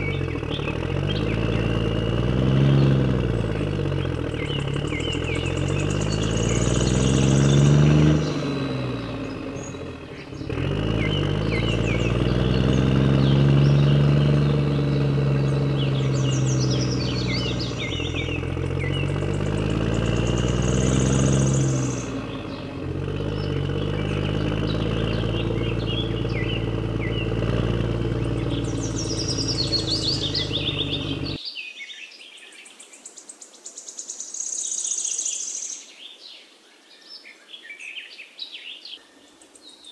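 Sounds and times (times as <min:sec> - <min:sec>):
engine running: 0:00.0 - 0:31.4
birds chirping: 0:00.0 - 0:39.9.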